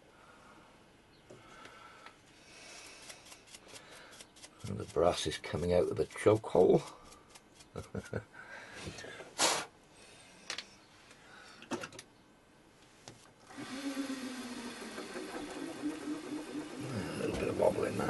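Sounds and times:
drill press motor humming: 13.5 - 18.0.

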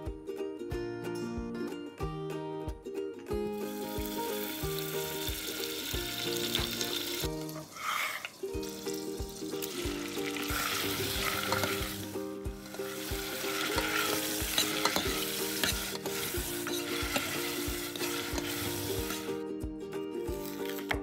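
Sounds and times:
chicken sizzling in pan: 3.6 - 19.4, 20.4 - 21.0
spoon scraping pan: 7.5 - 8.4, 10.3 - 19.4, 20.4 - 21.0.

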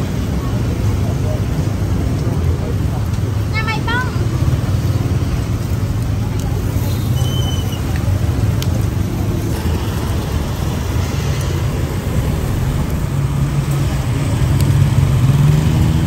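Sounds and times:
road traffic rumble: 0.0 - 16.0
vehicle engine: 4.1 - 16.0.

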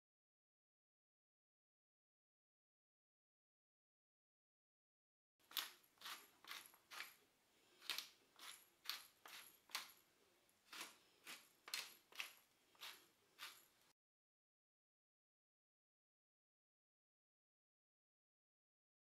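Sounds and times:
pepper mill grinding: 5.4 - 10.0, 10.7 - 13.9.

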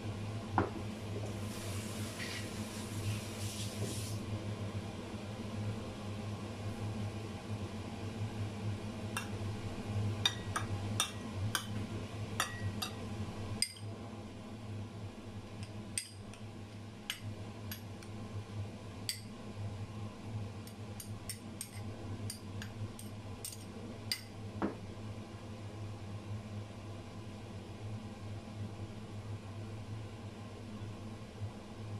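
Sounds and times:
steady low hum: 4.1 - 31.9
metal spoon clinking on glass: 12.4 - 13.0, 13.6 - 13.9.

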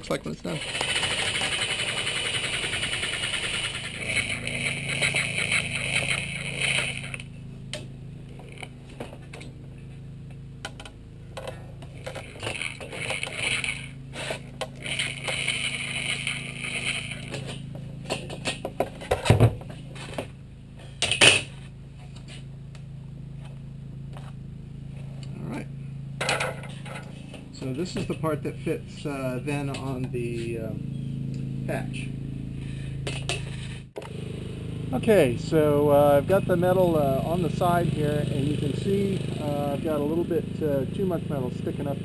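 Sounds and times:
steady hum: 0.0 - 42.0
electric shears cutting metal sheet: 0.5 - 8.8, 11.9 - 19.4.

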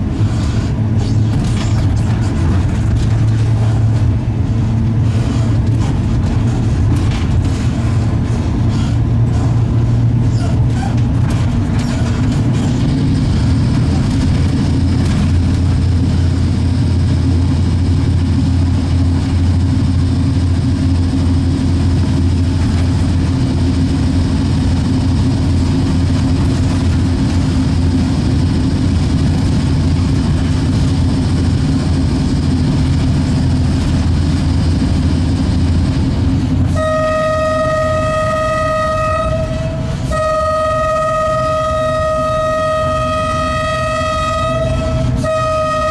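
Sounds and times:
electric locomotive humming: 0.0 - 45.9
locomotive horn blast: 36.6 - 45.9.

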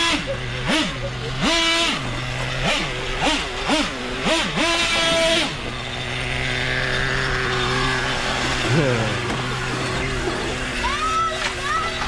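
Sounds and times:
small two-stroke engine revving: 0.0 - 12.0.

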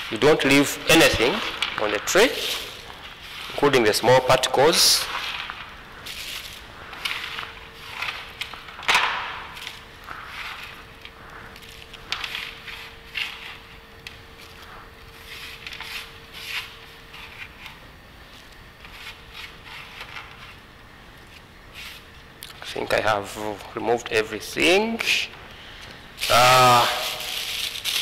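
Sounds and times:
plastic bag crinkling: 0.0 - 16.2, 26.2 - 28.0.

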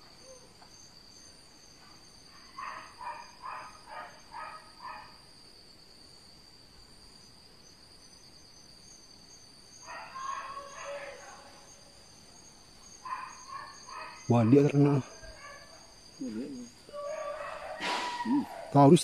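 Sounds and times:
insects droning: 0.0 - 19.0
short pitched calls: 13.1 - 18.8.

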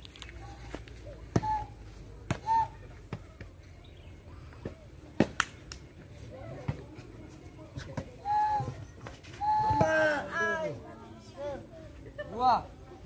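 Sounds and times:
foot kicking plastic ball: 2.2 - 3.6.

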